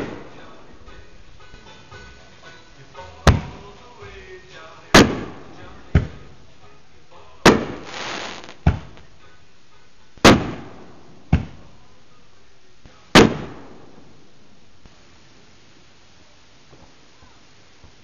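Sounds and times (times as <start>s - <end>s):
fireworks bangs: 7.5s - 9.0s
fireworks hissing crackle: 7.5s - 9.1s.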